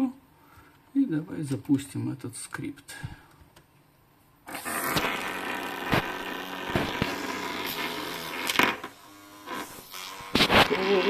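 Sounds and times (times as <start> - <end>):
small electric motor whirring: 4.5 - 11.0.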